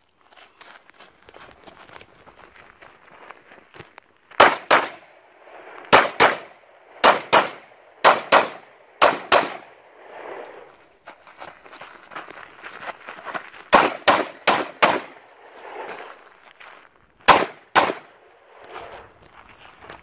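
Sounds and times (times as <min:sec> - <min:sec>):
faint footsteps on dirt: 0:00.0 - 0:20.0
handgun shots: 0:04.4 - 0:05.0, 0:05.9 - 0:09.7, 0:13.8 - 0:15.2, 0:17.3 - 0:18.1.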